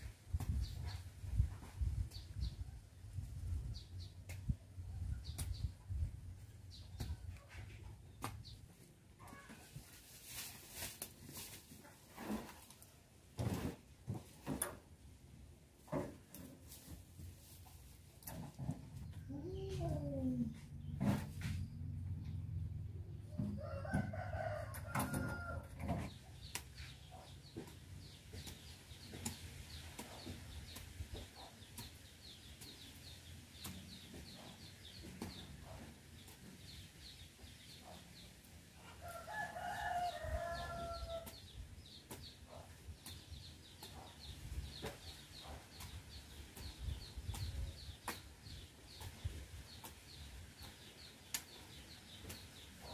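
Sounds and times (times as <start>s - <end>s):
rooster crowing: 23.6s - 25.7s, 39.0s - 41.3s.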